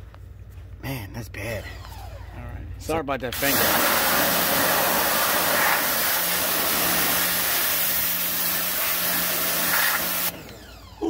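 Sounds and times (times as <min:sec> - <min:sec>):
water jet hissing: 0:03.3 - 0:10.3
pressure washer motor hum: 0:03.3 - 0:11.0.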